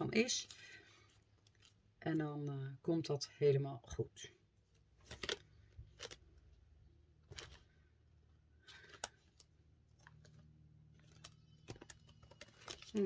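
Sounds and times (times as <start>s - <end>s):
plastic pockets rustling: 4.7s - 6.6s, 7.2s - 7.9s, 8.6s - 13.0s.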